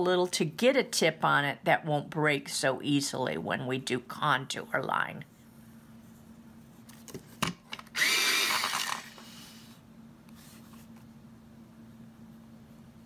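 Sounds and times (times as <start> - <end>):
electric pencil sharpener whine: 7.9 - 9.7.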